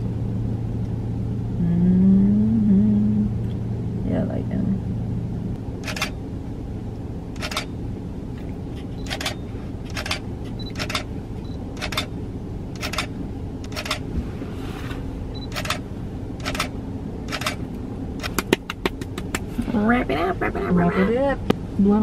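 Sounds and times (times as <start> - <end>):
steady low hum: 0.0 - 22.0
camera shutter clicks: 5.8 - 6.1, 7.4 - 7.7, 9.0 - 11.1, 11.8 - 12.1, 16.4 - 16.7.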